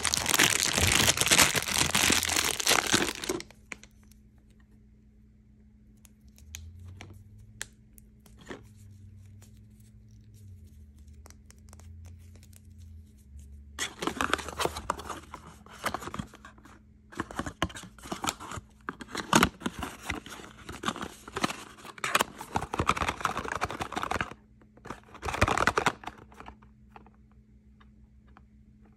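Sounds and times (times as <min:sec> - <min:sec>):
paper packaging crackling and tearing: 0:00.0 - 0:04.0.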